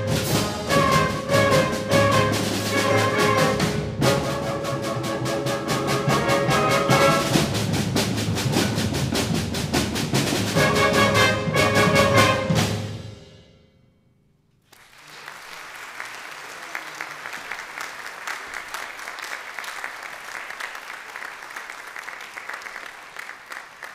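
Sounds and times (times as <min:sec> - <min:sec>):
concert band playing chords: 0:00.0 - 0:13.3
drum strikes: 0:00.0 - 0:13.6
audience applause: 0:14.7 - 0:23.9.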